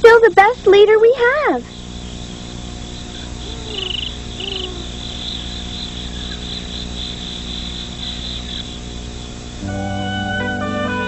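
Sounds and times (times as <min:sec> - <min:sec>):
crickets chirping: 0:00.0 - 0:10.4
faint low hum: 0:00.0 - 0:11.0
short high trills: 0:09.6 - 0:11.0.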